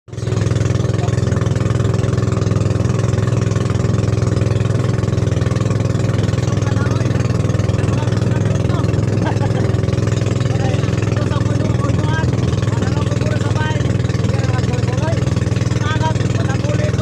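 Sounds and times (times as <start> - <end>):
boat engine drone: 0.1 - 17.0
water splashing along hull: 0.1 - 17.0.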